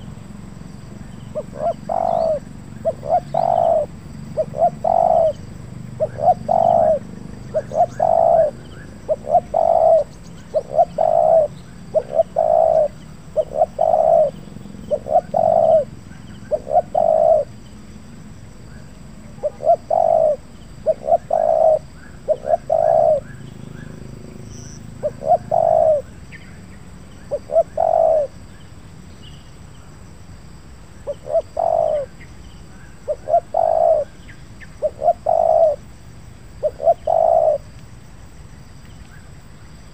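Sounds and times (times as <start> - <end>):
dove cooing: 1.2 - 17.7, 19.2 - 24.0, 24.8 - 26.3, 27.2 - 28.4, 31.0 - 32.2, 33.0 - 35.9, 36.5 - 37.8.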